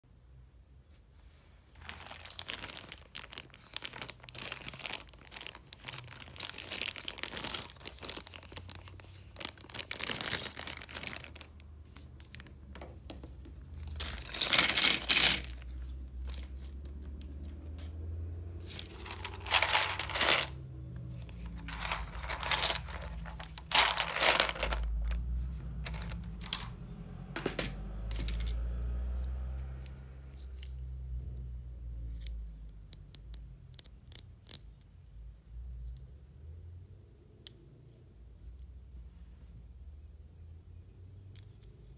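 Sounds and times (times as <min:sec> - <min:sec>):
wrappers tearing and crinkling: 0:01.8 - 0:11.6, 0:13.9 - 0:16.5, 0:18.7 - 0:20.6, 0:21.4 - 0:25.2.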